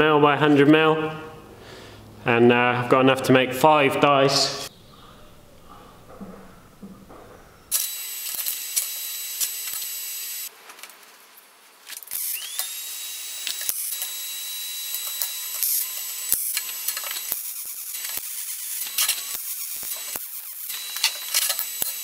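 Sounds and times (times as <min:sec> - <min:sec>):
metal plates clicking and knocking: 0:05.7 - 0:07.7.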